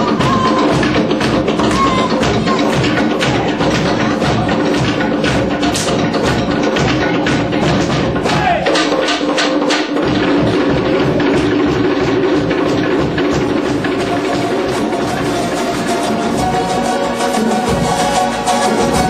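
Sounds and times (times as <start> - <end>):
percussion knocks: 0.0 - 19.0
sustained musical tones: 8.9 - 19.0.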